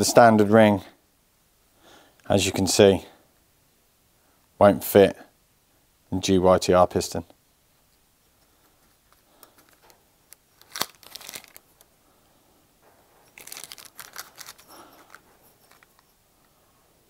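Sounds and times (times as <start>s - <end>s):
faint scraping and rustling: 7.7s - 17.0s.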